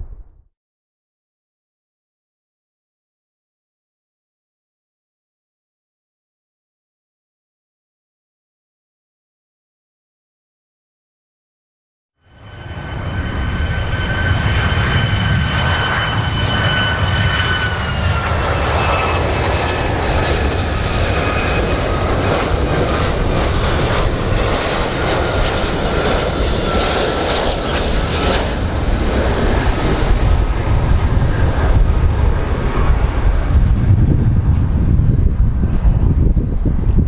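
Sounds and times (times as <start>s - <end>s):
low rumble: 0.0s - 0.5s, 12.4s - 37.0s
jet engine whine: 12.2s - 37.0s.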